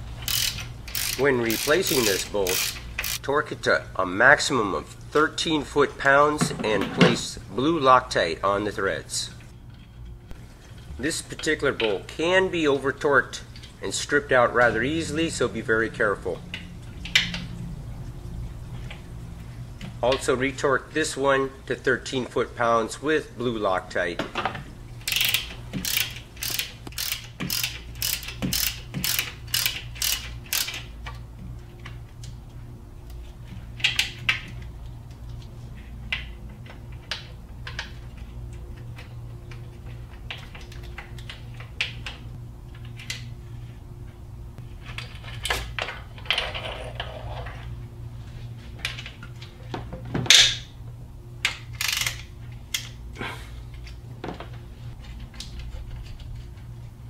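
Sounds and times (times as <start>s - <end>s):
steady low hum: 0.0s - 57.0s
hand ratchet clicking: 0.2s - 3.2s, 25.0s - 30.9s, 51.4s - 53.0s
tools and metal parts clinking: 0.2s - 3.2s, 24.4s - 32.0s.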